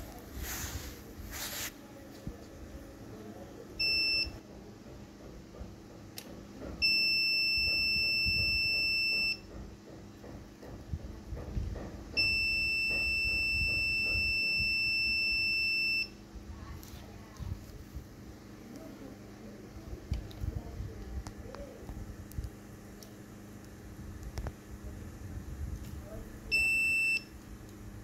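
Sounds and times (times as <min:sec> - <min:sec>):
multimeter high beep: 0:03.8 - 0:04.4, 0:06.8 - 0:09.5, 0:12.2 - 0:16.2, 0:26.5 - 0:27.3.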